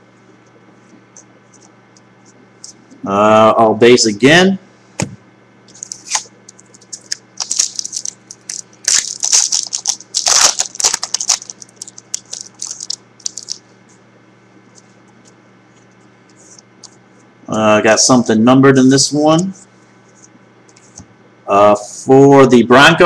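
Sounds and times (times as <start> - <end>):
foil wrapper crinkling and tearing: 5.7 - 13.6.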